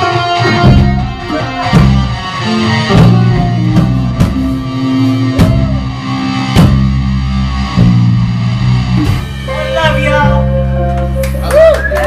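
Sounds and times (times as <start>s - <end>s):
keyboard chords: 0.0s - 12.0s
live rock band playing: 0.0s - 12.0s
heavy drum hits: 0.4s - 5.9s, 6.5s - 9.5s.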